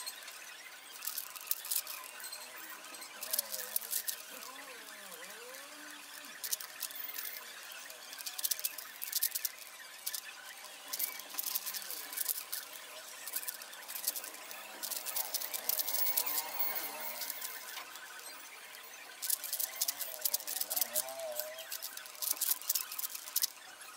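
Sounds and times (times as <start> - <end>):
puzzle cube clicking: 3.2 - 7.4, 8.2 - 10.2, 11.0 - 17.8, 19.2 - 23.6.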